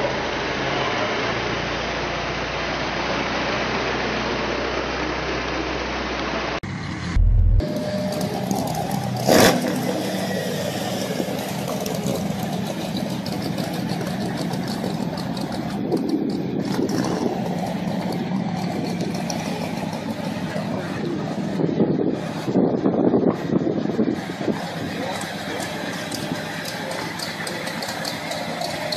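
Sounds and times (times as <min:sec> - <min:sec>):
car engine rumbling: 0:01.7 - 0:28.9
loud engine burst: 0:06.6 - 0:22.5
deep thump: 0:07.1 - 0:07.6.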